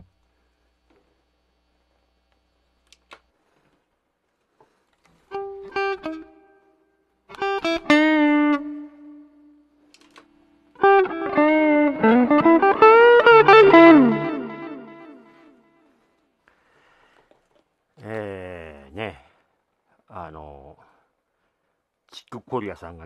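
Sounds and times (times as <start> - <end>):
electric guitar: 5.3 - 6.7, 7.3 - 15.7.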